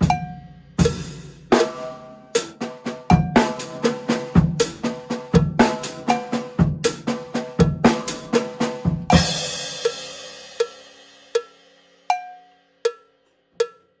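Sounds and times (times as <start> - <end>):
drum kit playing: 0.0 - 12.5
metronome clicks: 10.6 - 14.0.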